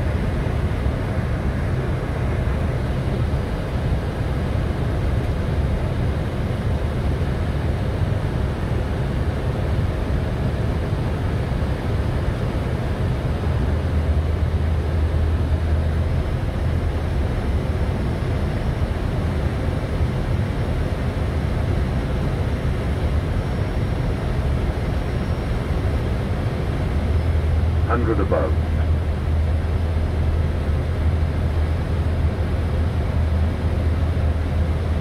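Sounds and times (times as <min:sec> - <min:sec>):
airliner engine noise: 0:00.0 - 0:35.0.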